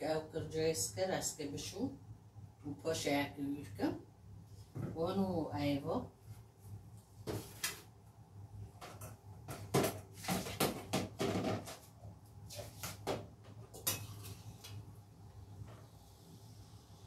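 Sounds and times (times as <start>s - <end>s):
low steady hum: 0.0s - 17.0s
pots and utensils clinking: 13.8s - 14.4s.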